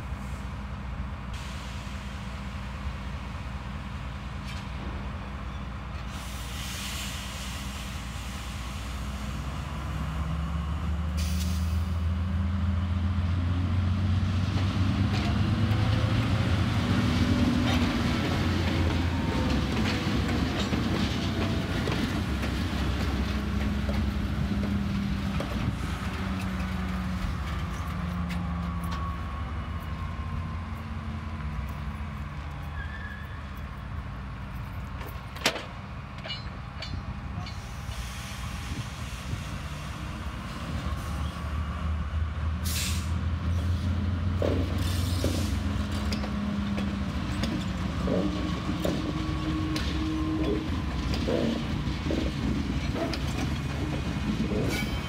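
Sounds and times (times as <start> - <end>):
diesel locomotive engine drone: 0.0 - 55.0
brief hiss: 6.1 - 9.3, 11.2 - 12.0
wheels clicking on rails: 44.4 - 55.0.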